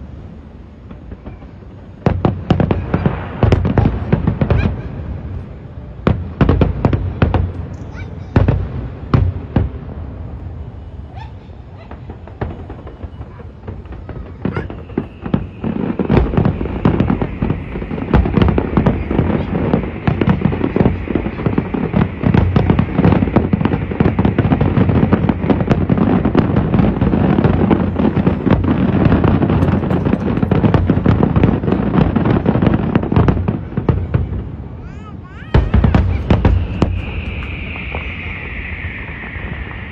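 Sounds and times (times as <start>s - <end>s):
fireworks shells bursting: 11.2s - 34.5s, 35.5s - 39.9s.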